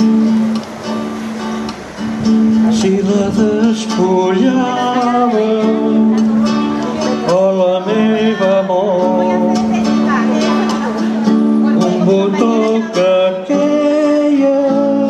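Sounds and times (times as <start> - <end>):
acoustic guitar playing: 0.0 - 15.0
man singing: 2.5 - 15.0.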